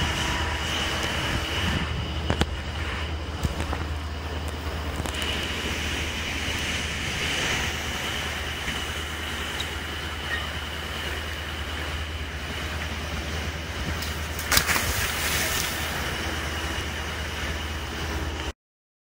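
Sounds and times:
boat engine running: 0.0s - 18.5s
water rushing along hull: 0.0s - 18.5s
loud splash: 5.2s - 17.7s.

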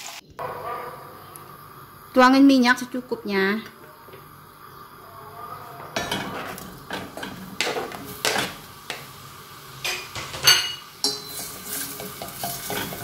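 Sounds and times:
onions scraped into saucepan: 6.0s - 8.7s, 10.8s - 13.0s.

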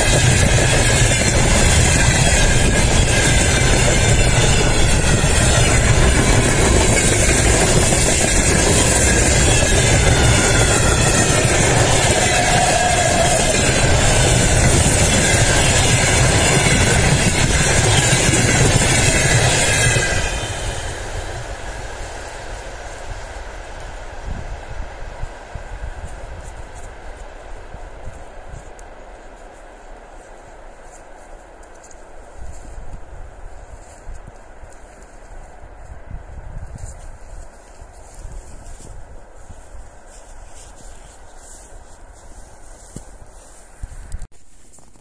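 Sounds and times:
freight train rolling past: 0.0s - 27.2s.

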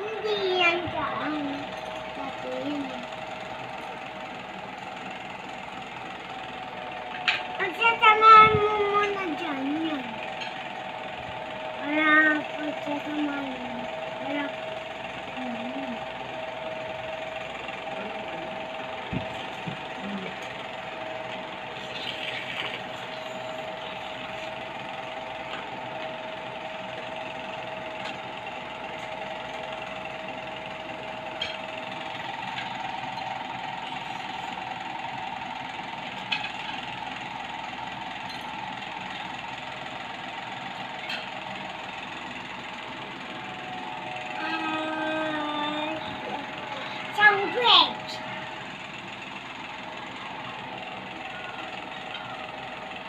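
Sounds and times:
mechanical hum and hiss: 0.0s - 53.0s
held tone: 43.5s - 53.0s.

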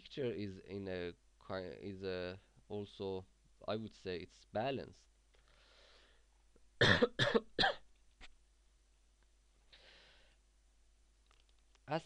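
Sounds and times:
soft breath: 5.4s - 6.4s, 9.6s - 10.5s
man coughing: 6.8s - 7.8s.

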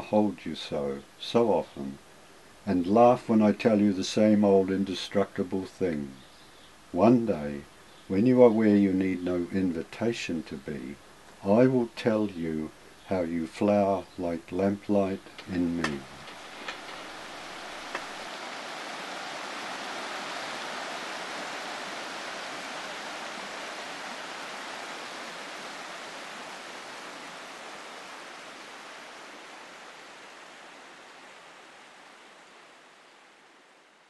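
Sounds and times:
river rushing over stones: 15.8s - 33.7s.

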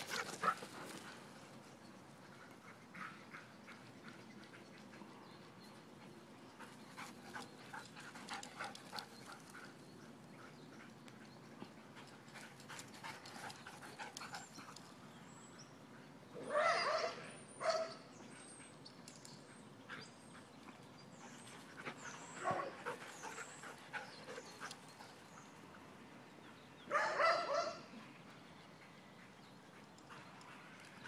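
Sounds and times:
dogs barking and yelping: 16.4s - 18.6s, 26.9s - 27.8s.

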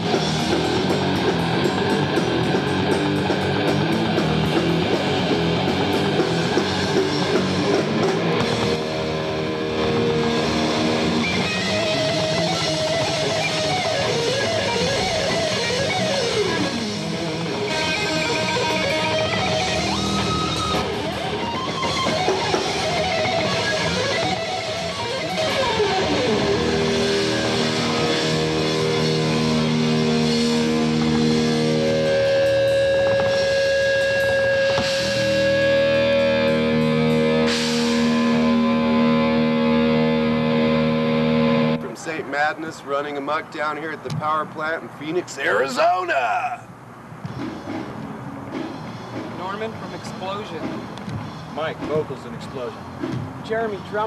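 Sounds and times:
distorted electric guitars: 0.0s - 42.2s
drums: 0.0s - 42.3s, 45.2s - 54.0s.

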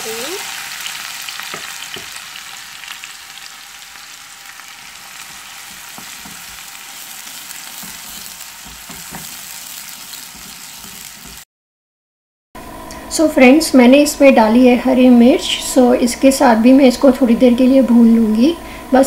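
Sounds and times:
onions sizzling in hot oil: 0.0s - 11.5s
wooden spatula scraping a pan: 5.0s - 11.4s.

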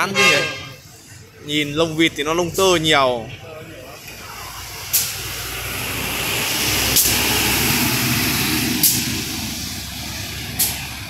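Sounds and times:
motor vehicle passing: 4.2s - 11.0s.

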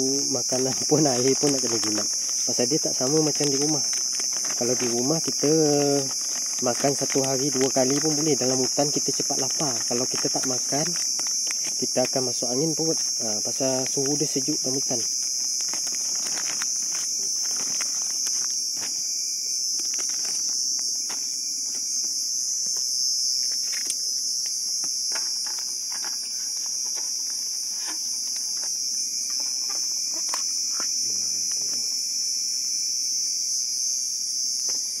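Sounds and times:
insect chorus shrilling: 0.0s - 35.0s
plastic pouches crinkling: 0.2s - 19.0s, 19.7s - 22.1s, 25.1s - 31.0s.

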